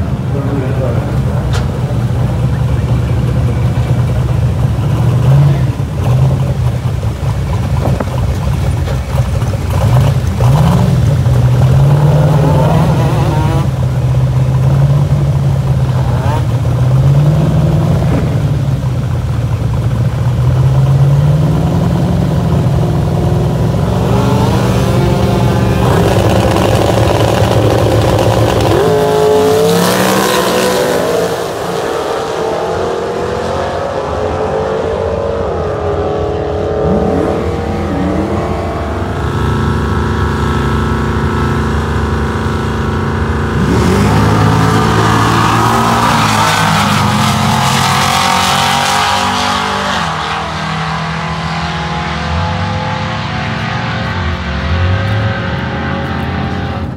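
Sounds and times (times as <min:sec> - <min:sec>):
drag car engine revving: 0:00.0 - 0:56.9
second car engine: 0:00.0 - 0:56.9.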